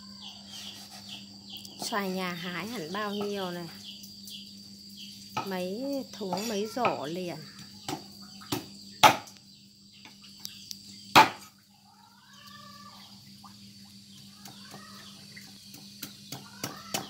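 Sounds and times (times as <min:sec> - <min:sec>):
knife chopping on wooden board: 0:07.9 - 0:09.3, 0:11.1 - 0:11.4.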